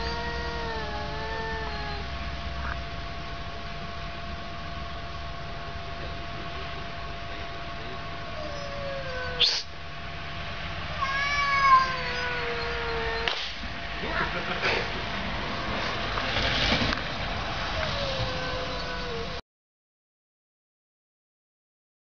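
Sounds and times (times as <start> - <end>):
cats caterwauling: 0.0 - 2.8, 8.4 - 9.7, 10.9 - 13.4, 17.7 - 19.4.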